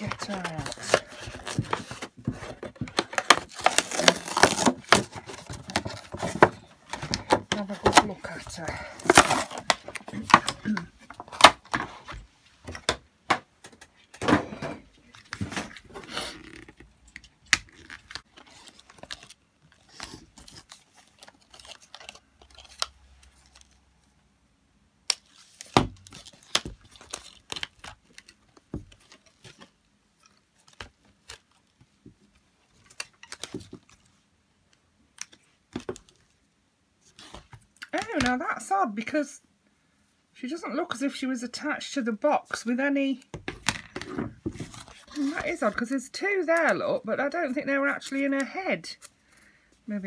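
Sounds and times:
packaging rustling and crinkling: 0.0 - 12.3, 15.1 - 23.9, 25.2 - 34.2, 43.6 - 45.9.

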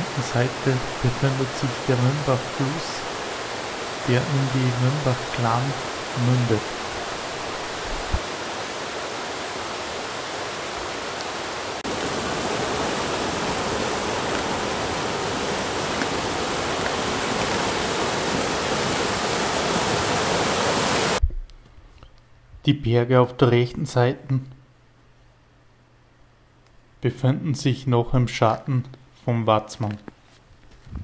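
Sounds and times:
river rushing over rocks: 0.0 - 21.2.

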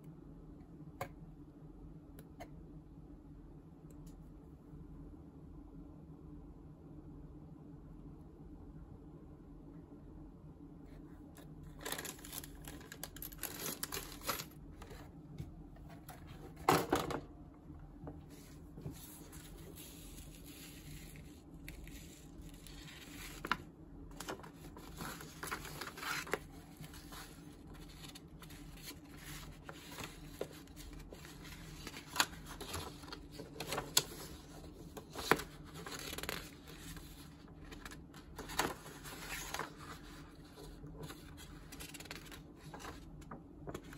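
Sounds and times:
paper pages rustling: 11.7 - 15.1, 18.3 - 43.9.

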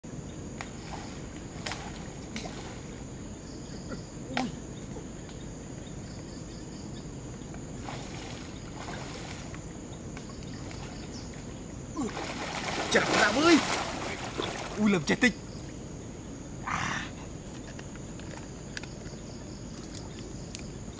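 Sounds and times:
water noise: 0.6 - 5.1, 7.3 - 18.8
person wading through water: 7.7 - 15.1.

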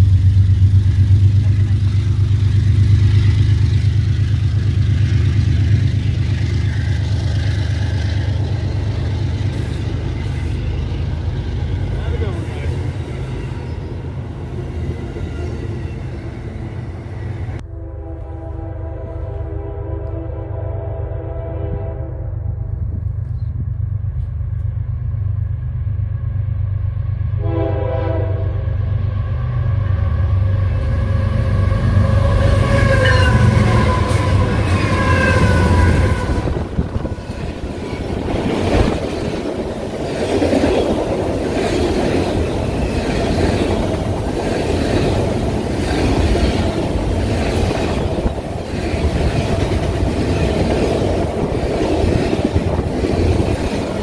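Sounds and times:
wheels clacking over rail joints: 0.0 - 13.9, 31.4 - 54.0
diesel locomotive rumble: 0.0 - 54.0
train horn blast: 17.6 - 23.0, 27.4 - 37.1.

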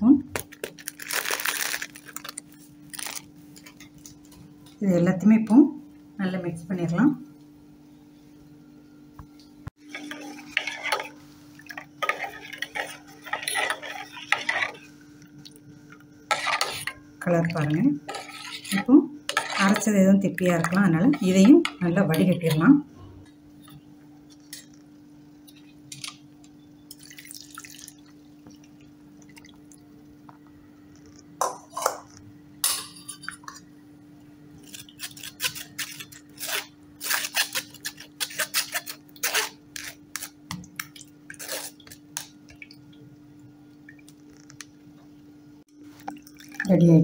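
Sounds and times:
spoon scraping mesh strainer: 12.0 - 14.9, 18.1 - 19.9.

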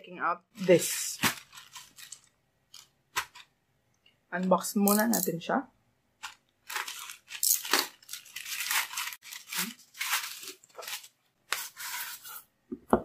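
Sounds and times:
plastic bag crinkling and rustling: 0.5 - 3.6, 6.2 - 12.4.

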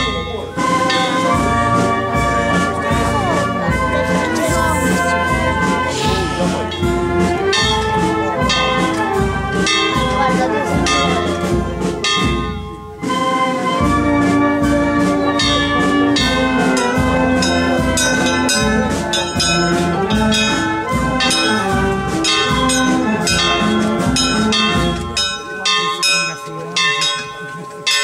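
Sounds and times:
trumpets: 0.0 - 25.5
trombones: 0.0 - 25.7
brass band march: 0.0 - 28.0
low drum beat: 0.0 - 28.0.

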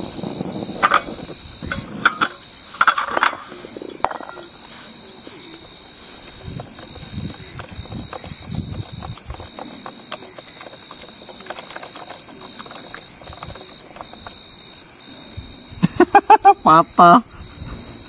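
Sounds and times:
high-pitched insect chorus: 0.0 - 18.0
stirrer clicking against plastic bottle: 6.4 - 14.4.

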